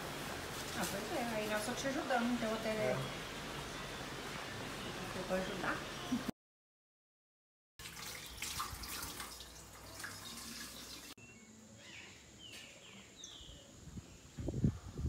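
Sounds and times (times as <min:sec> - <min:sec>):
running water rushing: 0:07.8 - 0:11.2
bird chirps: 0:11.2 - 0:14.4.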